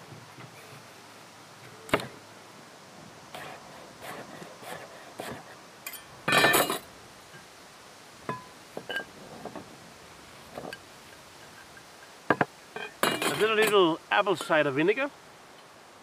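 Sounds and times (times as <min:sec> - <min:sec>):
crockery clinking: 0:05.9 - 0:06.9, 0:11.6 - 0:13.8.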